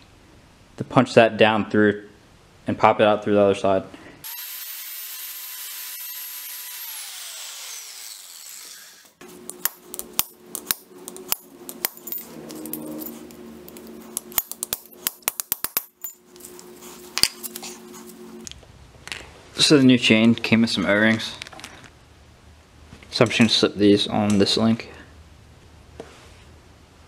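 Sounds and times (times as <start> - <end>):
electric grinder whining: 4.3 - 9.5.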